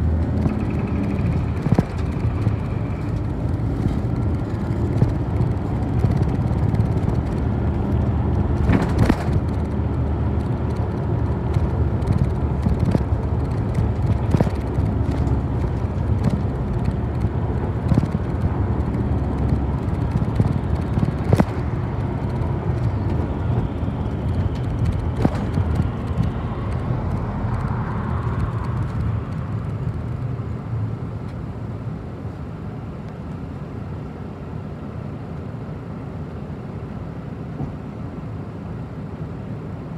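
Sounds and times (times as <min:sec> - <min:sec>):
sharp rattles and knocks: 0:00.0 - 0:30.3
bus engine and road rumble: 0:00.0 - 0:39.9.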